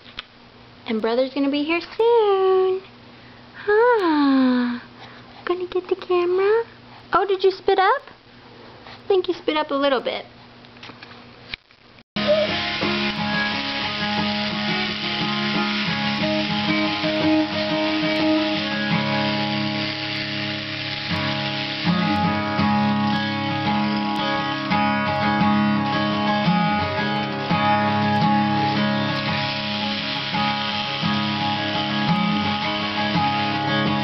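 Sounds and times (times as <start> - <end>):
acoustic guitar chords: 12.2 - 34.0.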